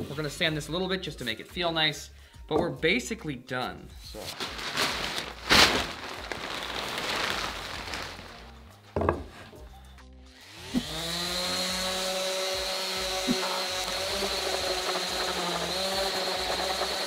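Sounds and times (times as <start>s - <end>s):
rustling: 4.2s - 8.6s
knock: 9.0s - 9.3s
electric sander whining: 10.4s - 17.0s.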